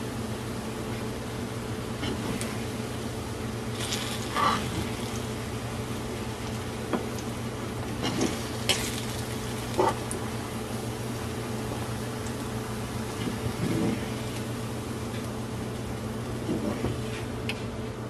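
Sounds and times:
steady hum: 0.0 - 18.0
slices sizzling in a frying pan: 3.6 - 15.3.

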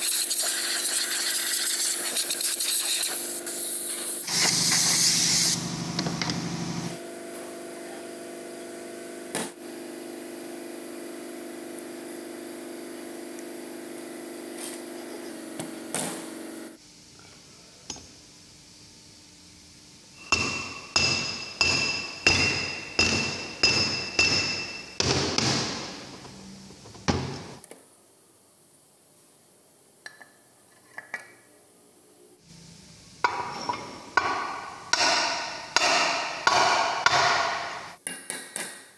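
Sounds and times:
steady machine hum: 4.2 - 27.6
ringing metallic knocks: 20.2 - 25.0.

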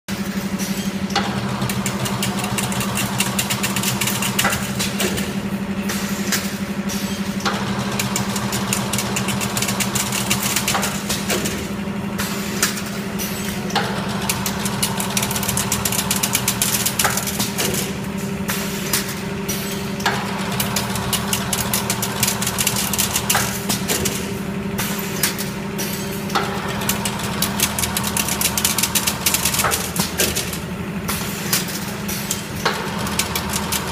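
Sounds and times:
sharp machine clacks: 0.2 - 33.9
motor hum: 1.0 - 33.9
wire mechanism rattling: 14.1 - 17.9, 20.5 - 24.3, 25.2 - 30.7.

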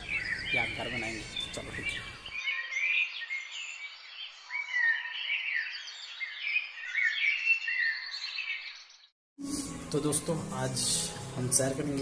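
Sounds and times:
small birds chirping: 0.0 - 9.2.

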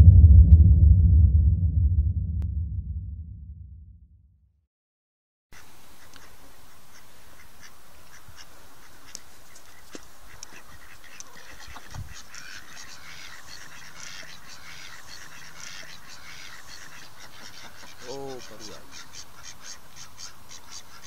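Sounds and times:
ducks quacking: 5.6 - 21.0.

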